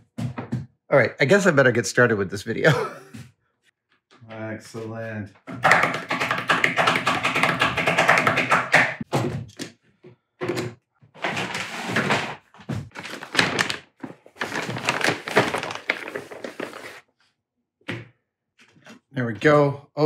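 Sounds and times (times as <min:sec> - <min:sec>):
plastic bag crinkling: 0:12.9 - 0:17.0.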